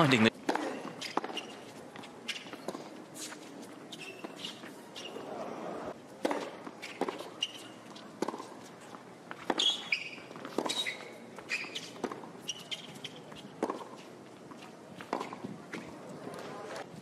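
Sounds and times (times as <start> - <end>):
racquet striking ball: 0.0 - 1.6
tennis ball bouncing: 0.0 - 5.5, 6.2 - 16.5
shoes squeaking on court: 0.0 - 16.9.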